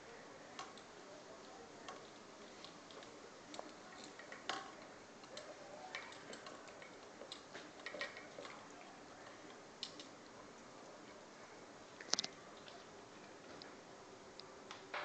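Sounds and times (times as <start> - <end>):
dog licking metal bowl: 5.2 - 10.1.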